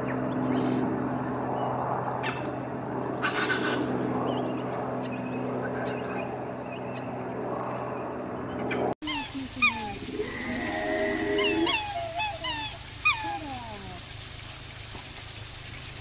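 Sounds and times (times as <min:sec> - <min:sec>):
swans bugling: 0:09.1 - 0:14.0.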